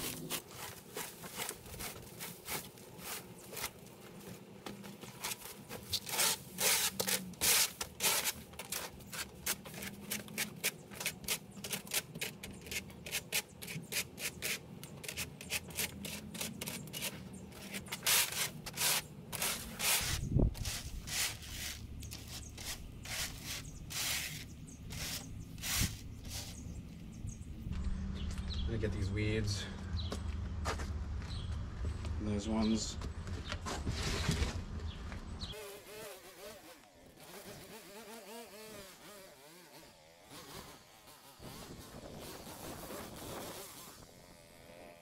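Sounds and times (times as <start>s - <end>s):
scraping and rustling strokes: 0.0s - 27.0s, 35.5s - 44.6s.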